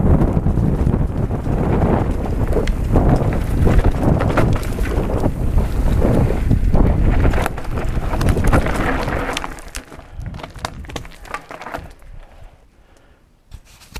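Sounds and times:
bike tyres rumbling over dirt: 0.0s - 12.5s
wind buffeting microphone: 0.0s - 12.6s
tyres crunching on gravel: 0.1s - 12.4s
stones clicking: 7.2s - 12.3s.

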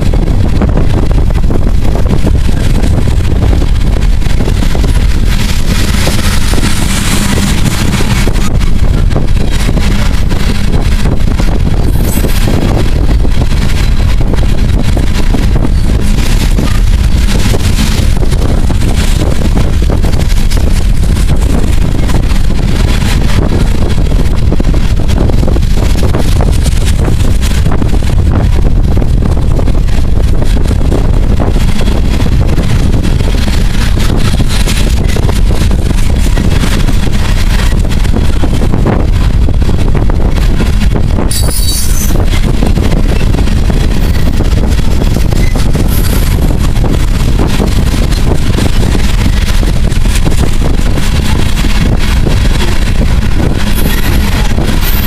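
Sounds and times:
train wheels rumbling on rails: 0.0s - 55.0s
wind buffeting microphone: 0.0s - 55.0s
high squeal: 41.3s - 42.2s.

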